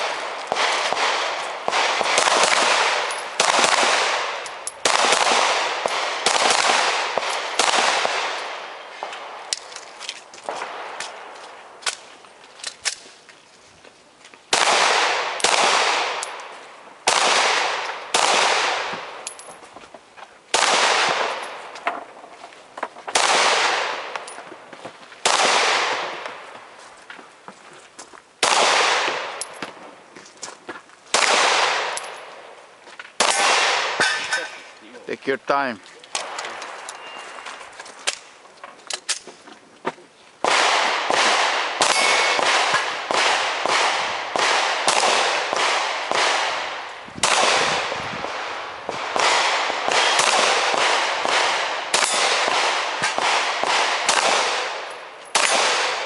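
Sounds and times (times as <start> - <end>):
pistol shots echoing: 0.0 - 9.6, 14.5 - 19.6, 20.5 - 21.8, 23.1 - 24.4, 25.2 - 26.4, 28.4 - 29.8, 31.1 - 32.5, 33.2 - 34.7, 40.4 - 56.0.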